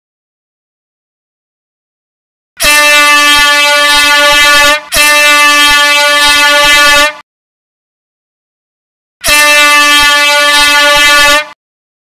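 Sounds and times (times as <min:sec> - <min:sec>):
air horn blasts: 0:02.6 - 0:07.2, 0:09.2 - 0:11.6.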